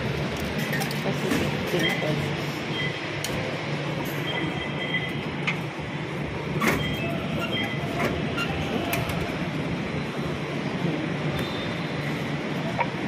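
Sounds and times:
rumble of trains: 0.0s - 13.0s
short high beeps: 4.2s - 5.2s.

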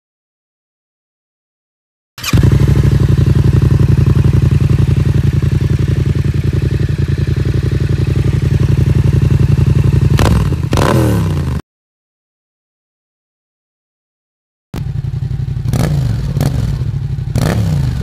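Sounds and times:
engine revving: 2.2s - 11.6s, 14.8s - 18.0s
motorcycle engine idling: 2.2s - 11.6s, 14.8s - 18.0s.

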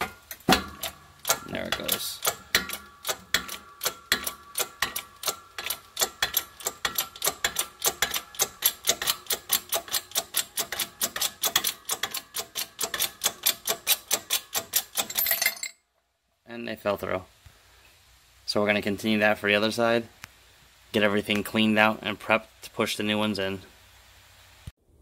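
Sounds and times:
rapid metallic clicks: 0.0s - 15.2s.

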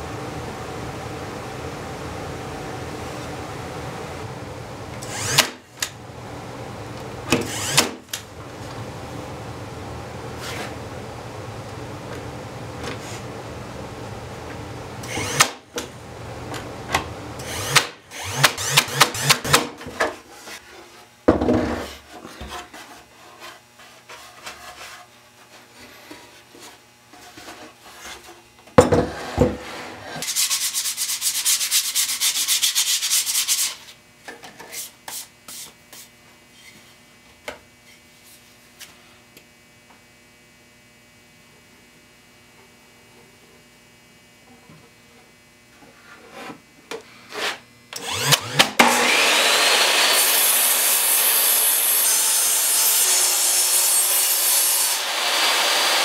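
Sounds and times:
brad nailer firing into wood: 5.2s - 5.6s, 7.3s - 8.0s, 15.2s - 15.6s, 17.7s - 19.8s, 48.2s - 49.2s.

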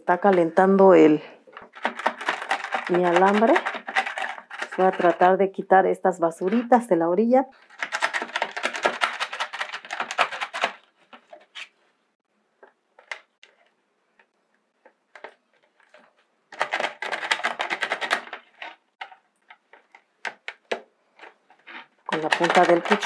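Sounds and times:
knife scraping plastic bucket: 1.6s - 5.4s, 21.2s - 23.0s.

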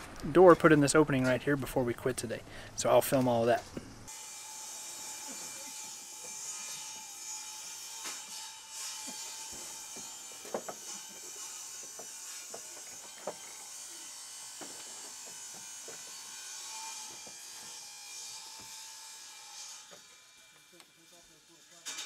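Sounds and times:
wood and tools knocking on deck: 9.6s - 10.8s.

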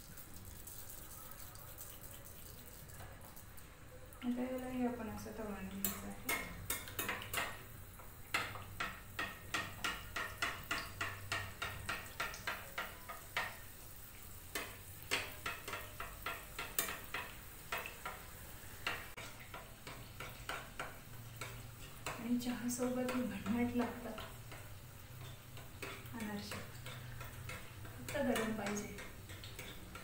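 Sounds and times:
oil sizzling: 0.0s - 30.0s
spoon clicking against a pan: 5.7s - 13.7s, 14.5s - 30.0s.

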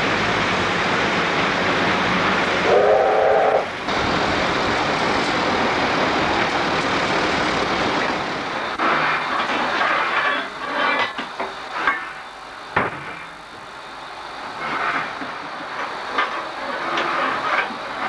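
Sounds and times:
steam locomotive running: 0.0s - 18.0s
steam whistle blast: 2.6s - 3.7s.

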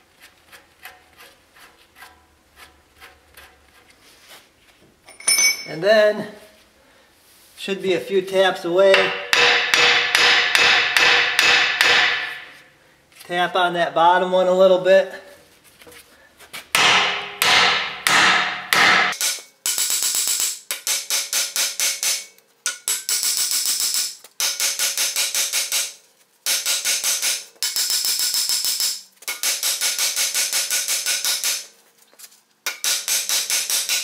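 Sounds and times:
hammer striking ringing steel: 5.1s - 5.8s, 8.9s - 12.6s, 16.8s - 31.7s.

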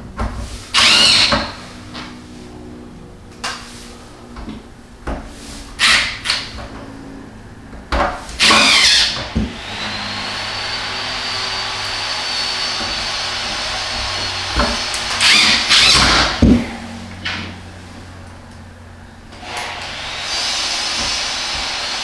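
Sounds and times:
cordless drill whirring: 0.7s - 1.6s, 5.8s - 6.5s, 8.4s - 16.4s, 19.4s - 22.0s
machine whir with high whine: 0.7s - 5.1s, 5.8s - 22.0s.

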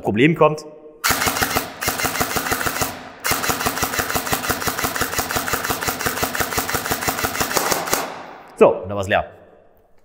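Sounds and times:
airsoft rifle full-auto firing: 1.0s - 8.5s.

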